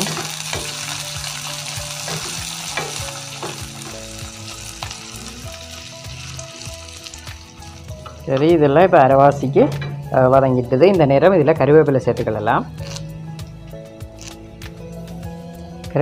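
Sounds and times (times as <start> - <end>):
onions sizzling in hot oil: 0.0 - 8.6.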